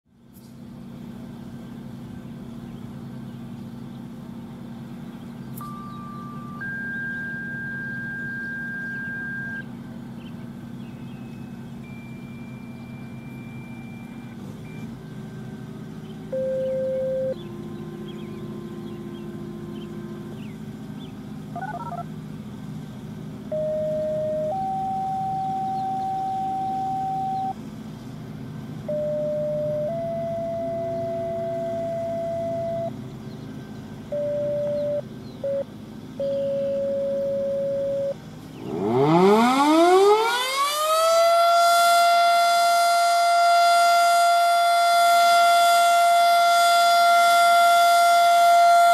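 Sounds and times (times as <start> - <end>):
low mechanical hum: 0.1 - 48.9
birds chirping: 0.2 - 39.0
steady pure tone: 5.3 - 33.1, 33.7 - 40.1.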